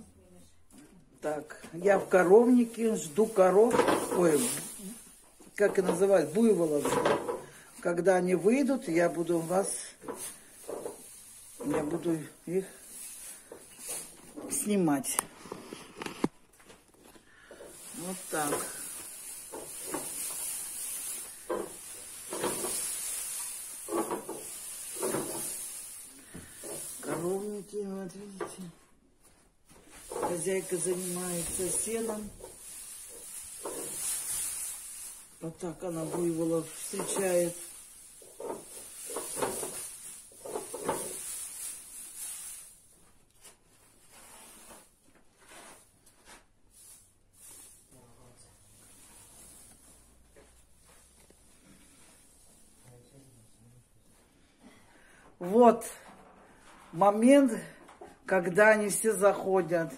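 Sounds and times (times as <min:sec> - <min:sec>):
hay rustling in wooden trough: 0:02.1 - 0:15.0, 0:17.4 - 0:28.4, 0:29.7 - 0:52.9
steady high hiss: 0:17.6 - 0:27.8.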